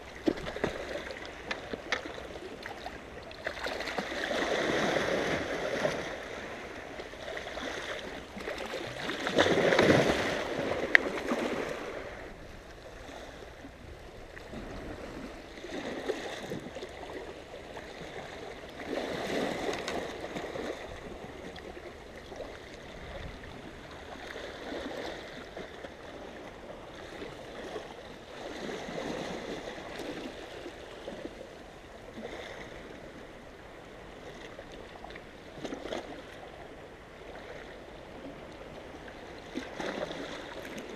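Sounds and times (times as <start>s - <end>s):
waves washing on rocky shore: 0.0s - 26.3s.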